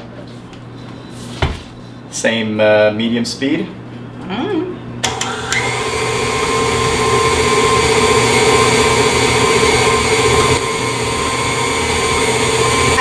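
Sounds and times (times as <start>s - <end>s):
stand mixer beating mixture: 5.0s - 13.0s.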